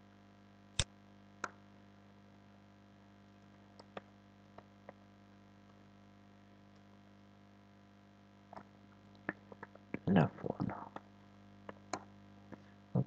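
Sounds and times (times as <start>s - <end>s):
electrical hum: 0.0s - 13.0s
mumbled voice: 9.6s - 11.0s.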